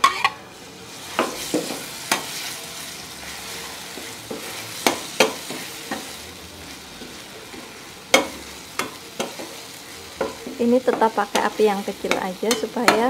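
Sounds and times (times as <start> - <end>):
metal spatula scraping pan: 0.0 - 0.4
paste sizzling in hot oil: 0.6 - 13.0.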